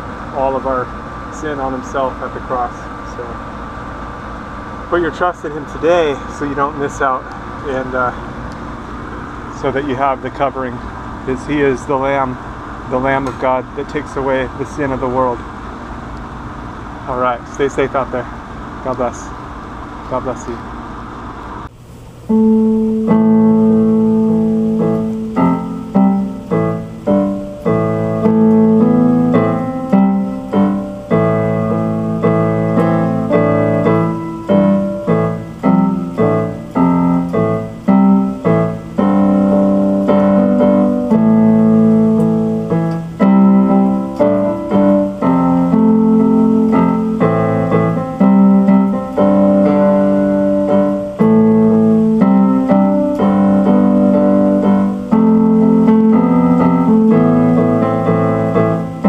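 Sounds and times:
piano music on keyboard: 0.0 - 15.6, 22.2 - 59.0.

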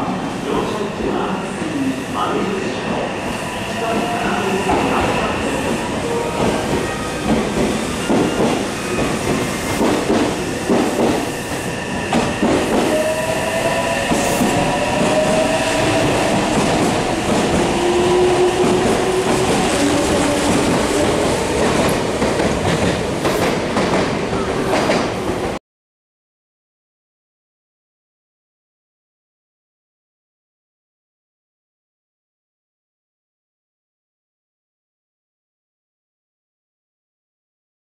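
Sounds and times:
train wheels clattering: 6.4 - 13.0.

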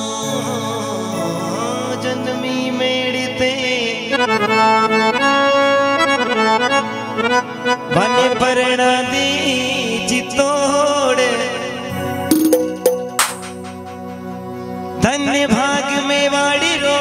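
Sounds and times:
harmonium melody: 3.8 - 10.0.

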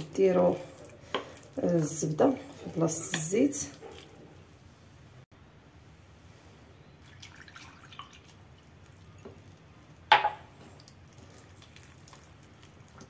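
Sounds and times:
spoon stirring mashed potatoes: 0.0 - 4.6.

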